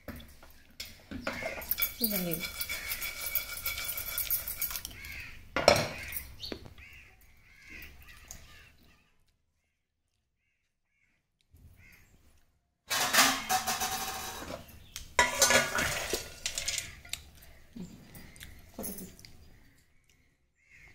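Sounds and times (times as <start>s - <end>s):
pressure cooker metallic clatter: 1.2s - 4.7s, 12.9s - 16.9s
popcorn poured onto steel plate: 15.2s - 17.0s.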